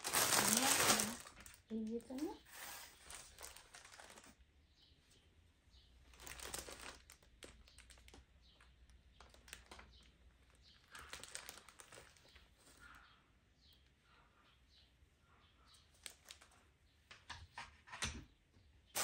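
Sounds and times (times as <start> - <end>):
yarn shawl rustling: 0.0 - 4.3.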